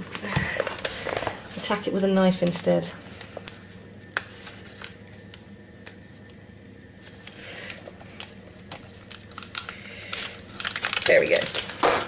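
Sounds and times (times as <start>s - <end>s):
knife scraping plastic packet: 9.0s - 12.0s.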